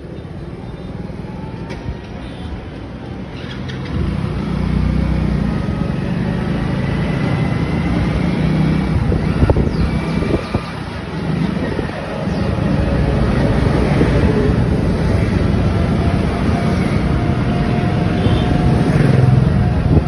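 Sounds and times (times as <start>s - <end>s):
road rumble: 0.0s - 20.0s
wind rushing over microphone: 7.3s - 20.0s.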